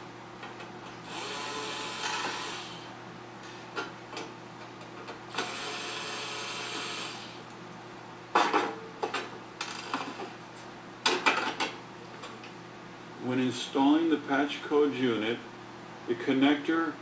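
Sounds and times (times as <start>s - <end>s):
electric screwdriver whirring: 1.1s - 2.8s, 5.4s - 7.4s.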